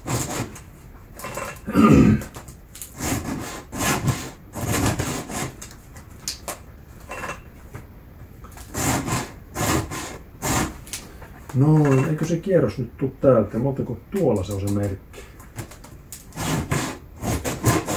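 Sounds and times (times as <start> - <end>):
file rasping on chainsaw chain: 8.7 - 10.8, 16.4 - 17.9.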